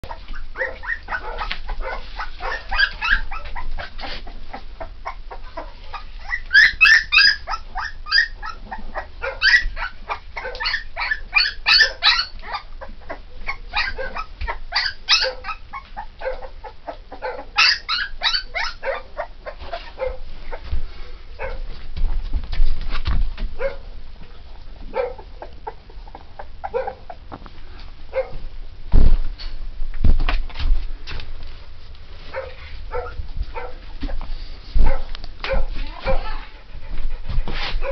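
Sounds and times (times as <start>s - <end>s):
puppies crying: 0.0s - 20.6s
dull bumps: 28.9s - 29.4s.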